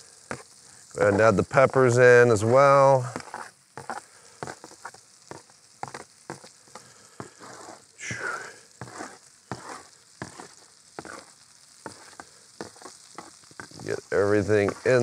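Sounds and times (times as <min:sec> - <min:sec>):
food sizzling in a skillet: 0:00.0 - 0:15.0
metal spatula scraping and tapping: 0:03.1 - 0:06.5, 0:08.8 - 0:14.0, 0:14.6 - 0:15.0.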